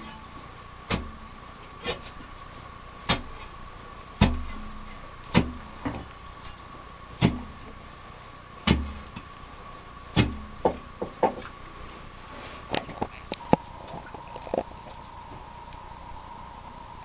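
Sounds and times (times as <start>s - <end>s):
digging tool striking gravel: 4.2s - 5.6s, 7.2s - 7.5s, 8.6s - 9.2s, 10.1s - 10.7s
light clicks and scrapes: 11.4s - 15.0s.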